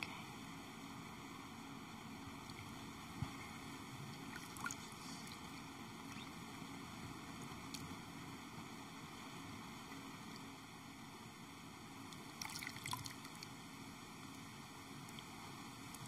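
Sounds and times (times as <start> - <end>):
steady room hiss: 0.0 - 16.0
water splashing and trickling: 4.2 - 6.3, 12.2 - 13.5.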